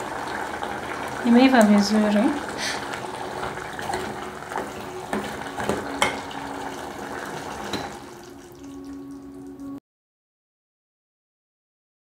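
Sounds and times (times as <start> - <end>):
ladle knocking against pot: 3.8 - 6.3, 7.6 - 8.0.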